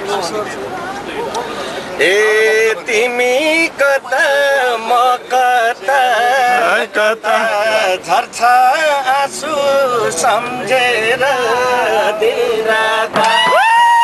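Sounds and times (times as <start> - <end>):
man singing: 2.0 - 13.6.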